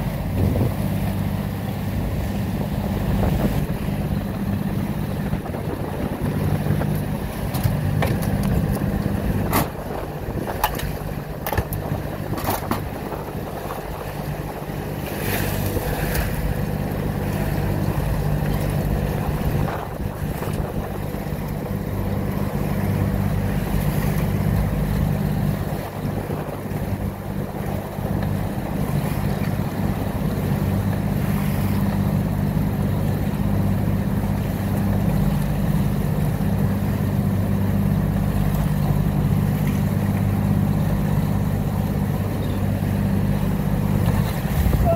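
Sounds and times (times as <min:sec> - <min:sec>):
wind on microphone: 0:00.0 - 0:22.2, 0:22.9 - 0:30.9, 0:43.7 - 0:44.9
boat motor running: 0:00.0 - 0:44.9
water rushing past hull: 0:00.0 - 0:44.9.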